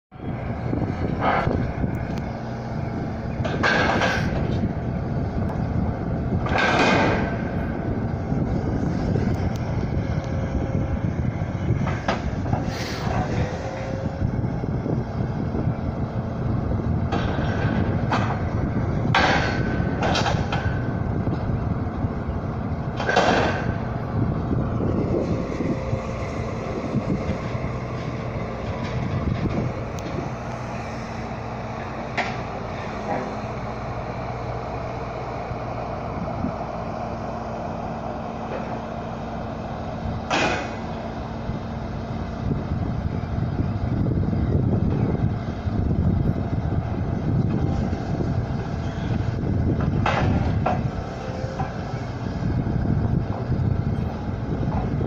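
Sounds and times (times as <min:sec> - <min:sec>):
distant vehicle engines humming: 0:00.1 - 0:55.0
excavator low rumble: 0:00.1 - 0:55.0
hydraulic hissing surges: 0:12.6 - 0:14.1.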